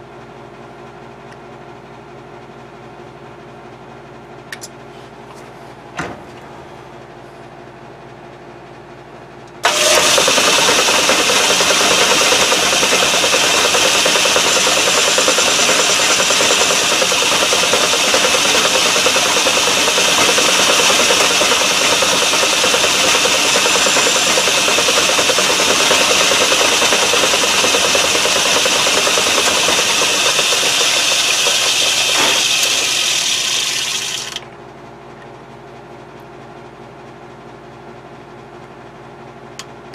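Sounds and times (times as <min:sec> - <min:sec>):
metal lathe whirring: 0:09.6 - 0:34.4.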